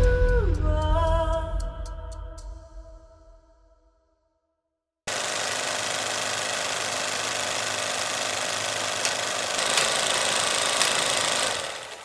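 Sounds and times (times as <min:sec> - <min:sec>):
film projector clattering: 0:05.1 - 0:12.0
sharp clicks: 0:08.9 - 0:12.0.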